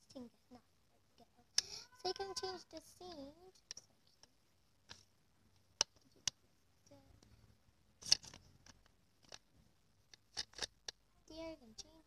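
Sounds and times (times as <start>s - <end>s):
card clicking and rustling: 8.0s - 9.5s, 10.1s - 11.0s.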